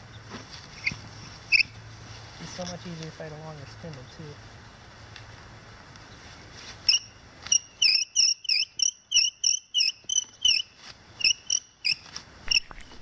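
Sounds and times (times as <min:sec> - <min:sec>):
bow scraping across ground: 0:00.2 - 0:03.2, 0:06.2 - 0:06.9
bow drill squeaking: 0:11.2 - 0:13.0.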